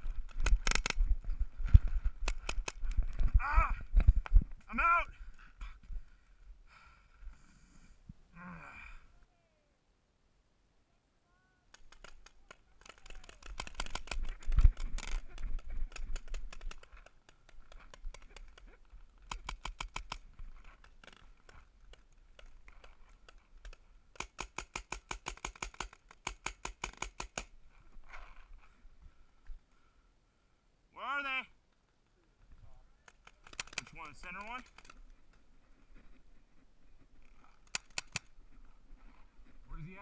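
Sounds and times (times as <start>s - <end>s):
paintball markers popping: 0.2s - 1.1s, 2.2s - 3.2s, 11.7s - 27.5s, 33.0s - 35.1s, 37.4s - 38.3s.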